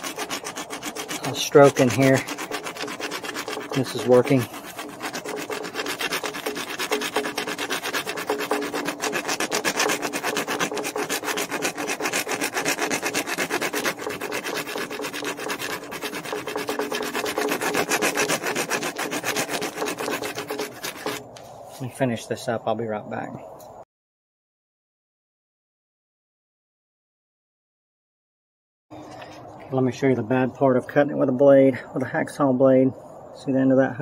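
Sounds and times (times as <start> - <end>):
hacksaw blade sawing metal tube: 0.0 - 21.2.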